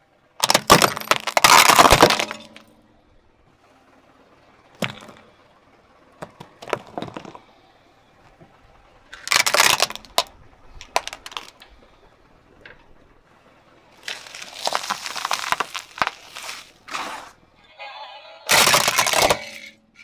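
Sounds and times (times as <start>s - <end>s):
plastic cracking and snapping: 0.4s - 2.4s, 9.2s - 11.6s, 14.1s - 16.6s, 18.5s - 19.6s
soap cracking under tyre: 0.4s - 2.8s, 4.8s - 5.4s, 6.2s - 7.6s, 8.3s - 12.0s, 13.9s - 17.4s, 18.5s - 19.8s.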